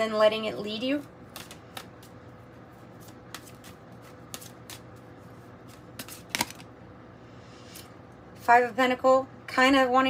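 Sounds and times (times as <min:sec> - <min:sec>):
cards shuffling: 0:01.3 - 0:06.7.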